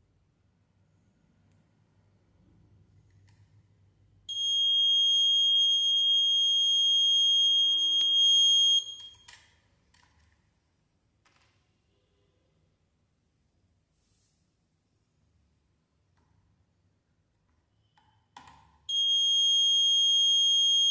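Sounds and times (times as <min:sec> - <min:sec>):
high-pitched buzzer beep: 0:04.3 - 0:09.3, 0:18.9 - 0:20.9.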